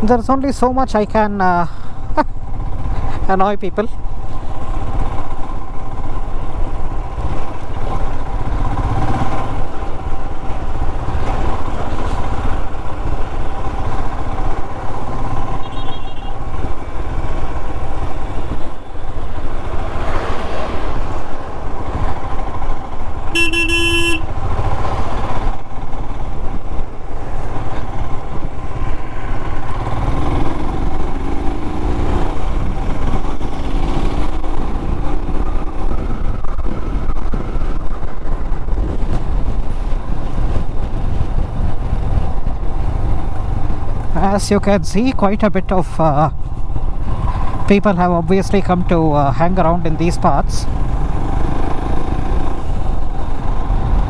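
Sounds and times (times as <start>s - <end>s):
vehicle horn honking: 15.6s - 16.4s, 23.3s - 24.3s
motorcycle engine running: 21.3s - 44.3s
wind rumble: 24.2s - 54.0s.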